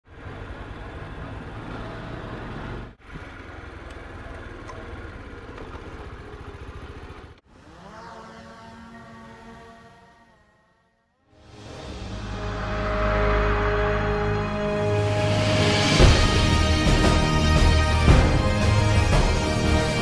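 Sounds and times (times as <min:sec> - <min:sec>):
motorcycle engine running: 0:00.1 - 0:10.0
drone motors whining: 0:07.5 - 0:11.2.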